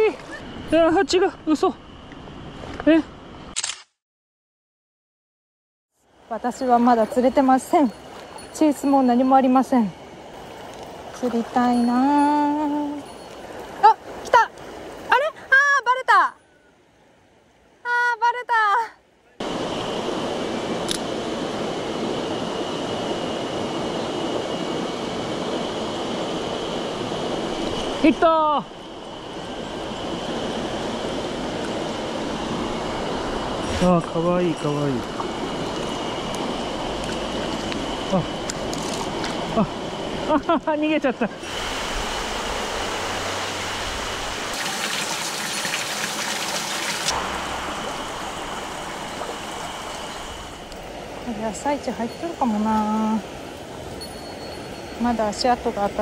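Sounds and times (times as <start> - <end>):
mountain stream rushing: 26.3 - 40.3, 41.4 - 52.6
stream rushing over rocks: 41.4 - 51.1
water pouring from spout into trough: 44.5 - 47.1.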